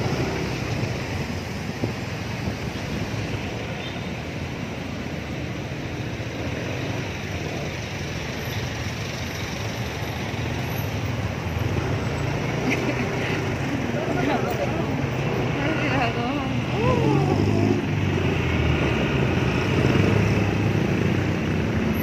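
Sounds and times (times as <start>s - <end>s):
traffic noise: 0.0s - 22.0s.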